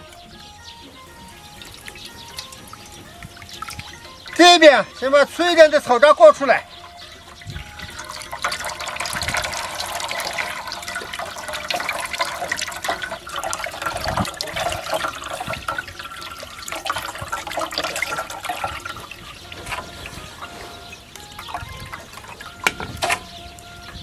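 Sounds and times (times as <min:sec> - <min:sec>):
small wet clicks: 0:01.3 - 0:04.5, 0:06.7 - 0:23.7
liquid splashing through a sieve: 0:07.2 - 0:23.2.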